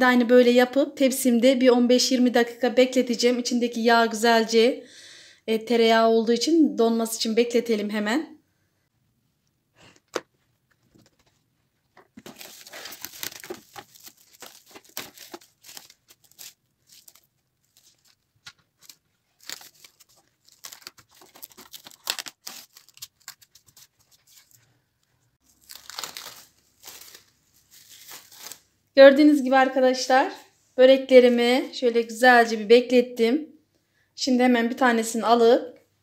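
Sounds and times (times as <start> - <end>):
plastic cling film crinkling: 11.0 - 24.7, 25.4 - 28.7.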